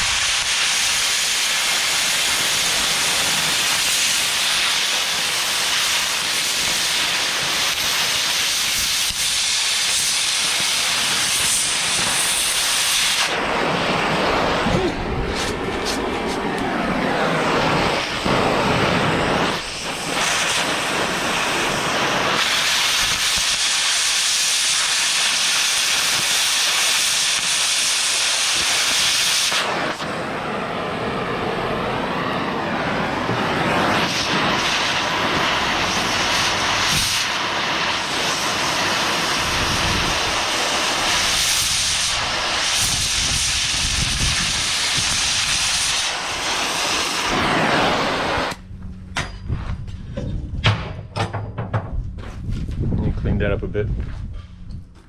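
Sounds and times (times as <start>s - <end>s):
cutting torch hissing: 0.0s - 48.6s.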